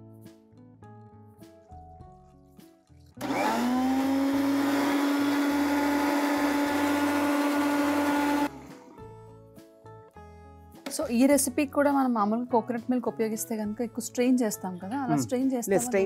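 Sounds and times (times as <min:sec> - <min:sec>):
mixer grinder whining: 0:03.2 - 0:09.1.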